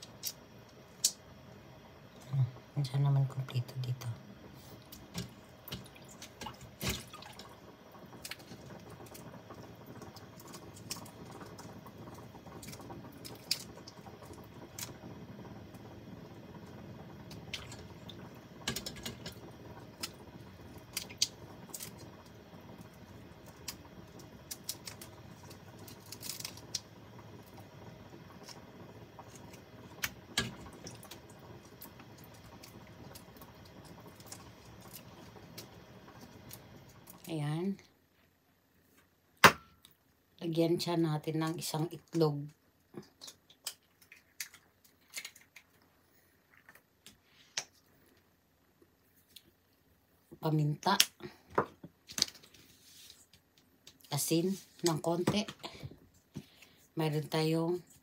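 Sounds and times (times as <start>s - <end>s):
shrimp shells peeling: 24.5s - 26.9s, 43.2s - 45.8s.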